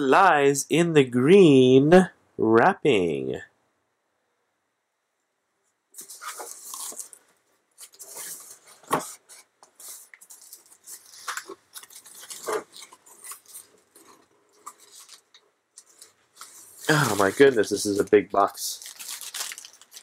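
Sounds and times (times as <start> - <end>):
plastic packing crinkling: 6.0 - 20.0.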